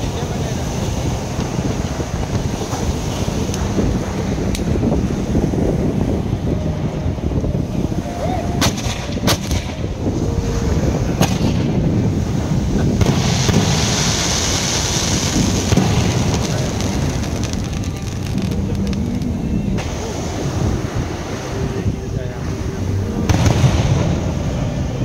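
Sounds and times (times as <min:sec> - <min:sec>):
fireworks booming: 0:08.5 - 0:20.9, 0:23.2 - 0:25.0
fireworks sharp cracks: 0:08.6 - 0:10.0, 0:11.2 - 0:12.0, 0:12.8 - 0:20.0
fireworks hiss: 0:08.6 - 0:22.5.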